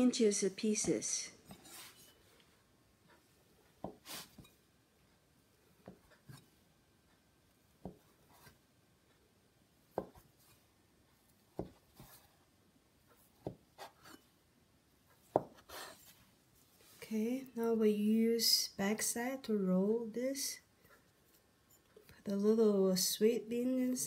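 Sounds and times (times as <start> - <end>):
hands rubbing dough: 1.5 - 2.6, 3.6 - 4.6.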